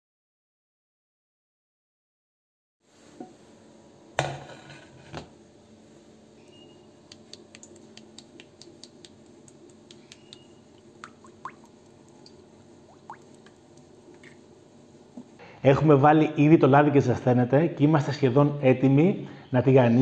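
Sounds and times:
oil ticking and crackling: 0:07.0 - 0:14.5.

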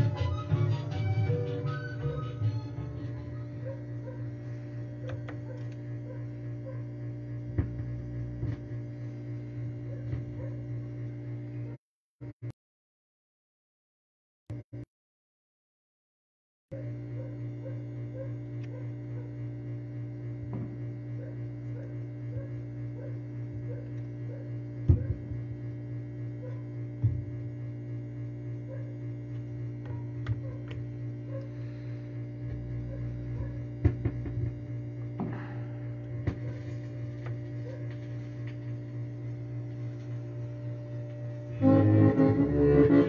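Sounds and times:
electrical hum: 0:00.0 - 0:12.5, 0:16.7 - 0:43.0.

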